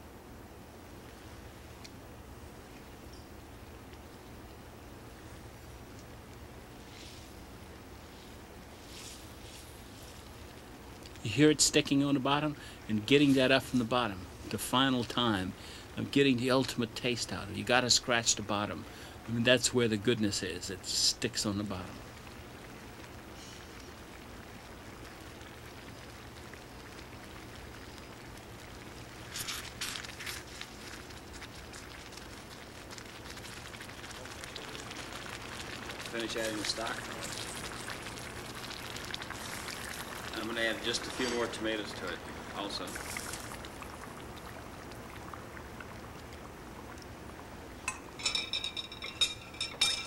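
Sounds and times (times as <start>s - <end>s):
pot bubbling softly: 0.0s - 50.0s
faint crackles: 0.7s - 50.0s
metallic clinks of cookware: 47.9s - 50.0s.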